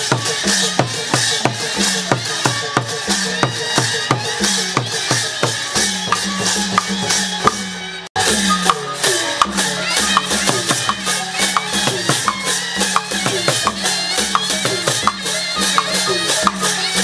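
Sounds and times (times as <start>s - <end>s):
tuned drums struck: 5.8s - 15.2s
small cymbals and clapper: 8.2s - 17.0s.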